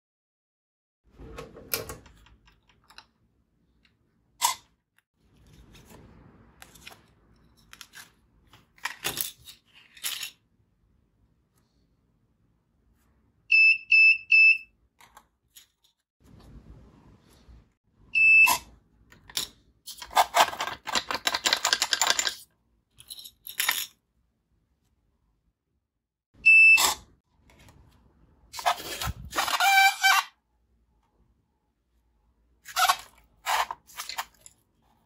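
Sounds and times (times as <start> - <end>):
buzzer beeps: 26.4 - 26.8.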